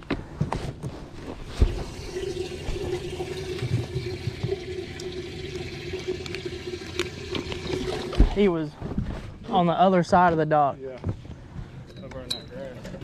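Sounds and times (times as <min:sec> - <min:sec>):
water splashing and pouring: 0:01.5 - 0:08.6
pump motor hum: 0:01.6 - 0:08.4.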